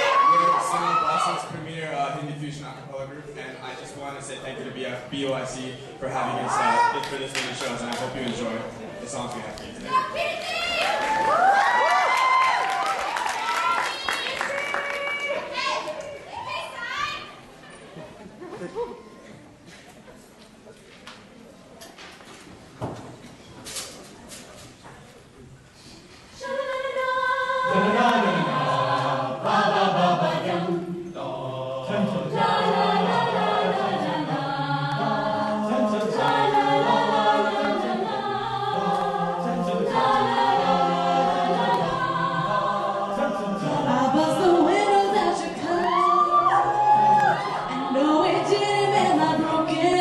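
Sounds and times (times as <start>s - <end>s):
a cappella group singing: 26.3s - 50.0s.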